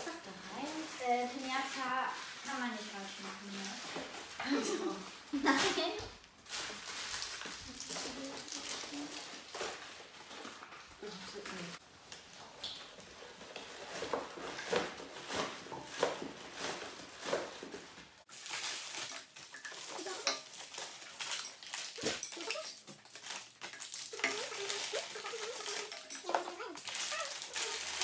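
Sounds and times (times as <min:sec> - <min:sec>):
plastic wrappers crinkling: 0:00.0 - 0:28.0
plastic cutlery clattering: 0:06.5 - 0:11.6, 0:12.6 - 0:28.0.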